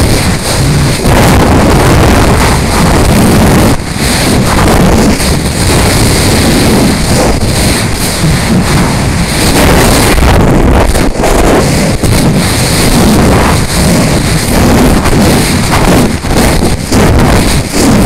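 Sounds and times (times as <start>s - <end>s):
gusty wind on microphone: 0.0s - 18.0s.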